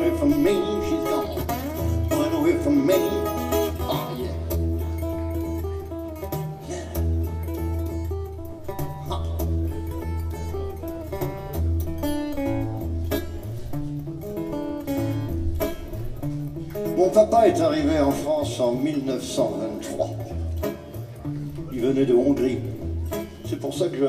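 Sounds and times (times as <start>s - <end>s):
acoustic guitar blues: 0.0s - 24.0s.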